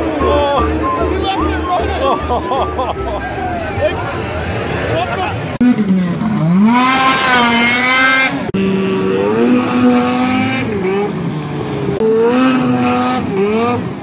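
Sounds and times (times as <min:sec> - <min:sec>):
snowmobile engine at high revs: 0:05.6 - 0:14.0.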